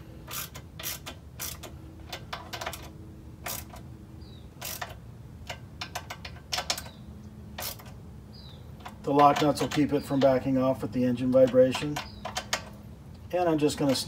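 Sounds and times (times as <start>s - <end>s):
wrench clicking on nuts: 0.2s - 3.9s, 4.6s - 7.0s, 7.6s - 8.0s, 8.8s - 10.5s, 11.2s - 12.8s.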